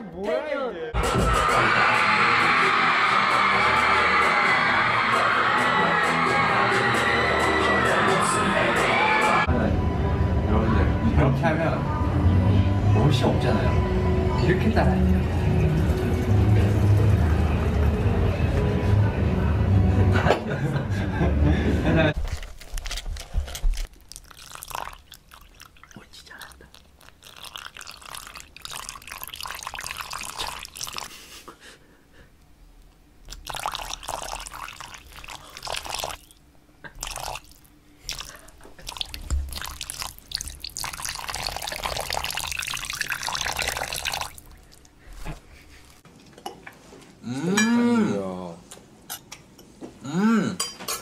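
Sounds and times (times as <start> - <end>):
liquid pouring into metal bowl: 22.4 - 31.2, 33.3 - 45.2.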